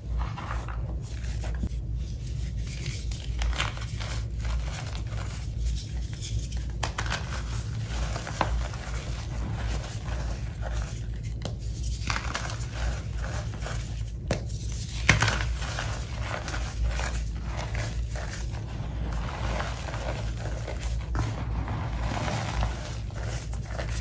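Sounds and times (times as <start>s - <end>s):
chalk crunching and crumbling: 0.0s - 24.0s.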